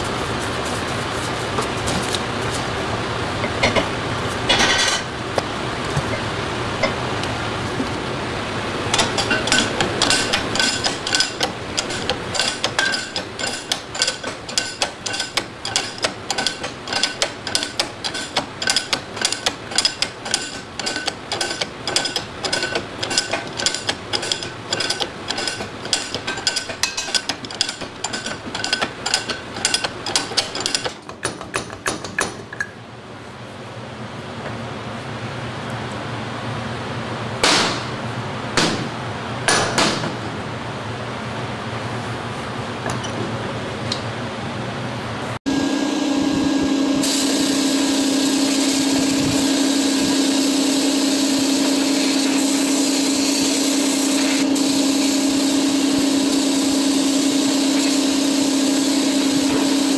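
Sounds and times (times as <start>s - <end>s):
hammer striking metal: 37.4s - 38.0s, 38.6s - 40.3s.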